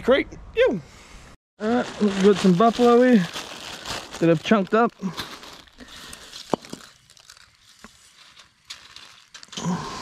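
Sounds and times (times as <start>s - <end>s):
plastic bag crinkling: 1.6s - 9.6s.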